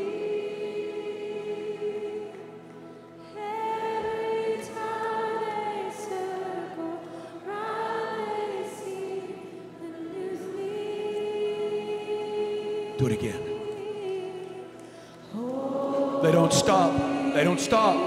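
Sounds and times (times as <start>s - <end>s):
women singing worship chorus: 0.0s - 18.0s
steady held chord: 12.9s - 18.0s.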